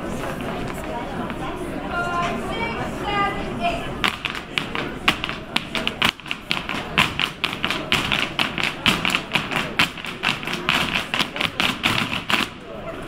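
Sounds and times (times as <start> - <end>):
hard shoes striking wooden floor: 4.0 - 12.6.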